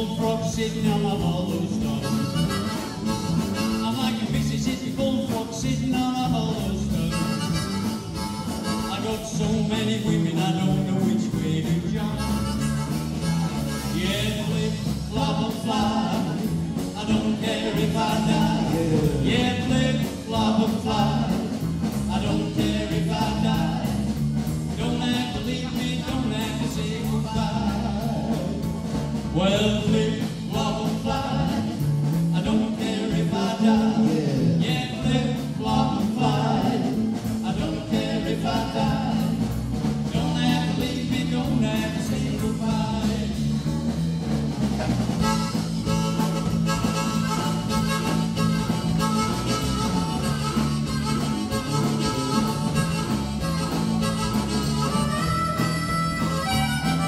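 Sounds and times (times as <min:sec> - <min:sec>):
bass guitar: 0:00.0 - 0:57.0
drum kit: 0:00.0 - 0:57.0
electric guitar: 0:00.0 - 0:57.0
amplified harmonica: 0:02.0 - 0:04.3, 0:07.0 - 0:09.2, 0:12.1 - 0:14.4, 0:44.8 - 0:57.0.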